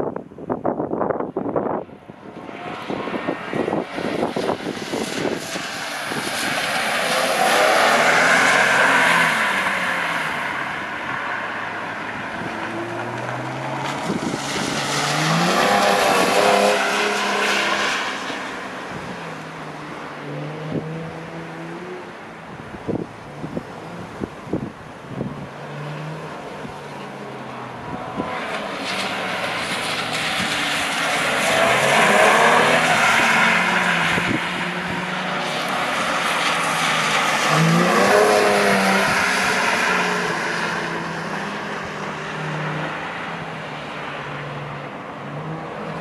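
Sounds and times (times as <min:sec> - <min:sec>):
car engine revving: 0:25.1 - 0:43.7.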